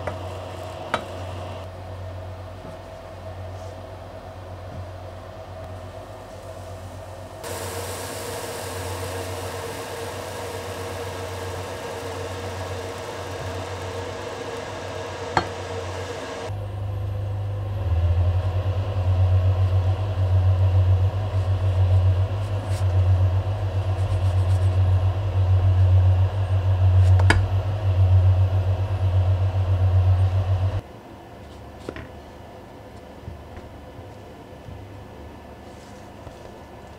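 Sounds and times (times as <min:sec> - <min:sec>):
low hum: 0:04.1 - 0:30.8
batter sizzling in a pan: 0:06.4 - 0:16.5.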